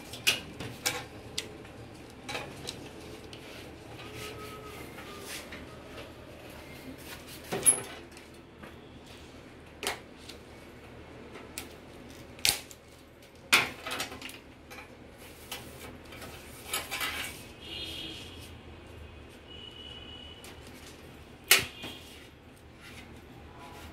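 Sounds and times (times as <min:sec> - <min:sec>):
tools and small parts clattering: 0:00.0 - 0:03.0, 0:07.4 - 0:08.4, 0:13.4 - 0:17.5.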